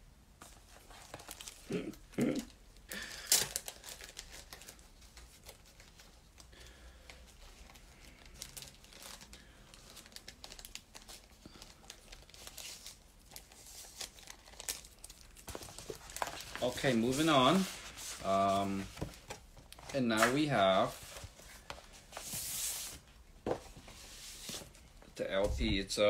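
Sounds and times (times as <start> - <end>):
paper crinkling and rustling: 0.4 - 1.8, 3.0 - 25.9
small paper crackles: 2.9 - 22.9.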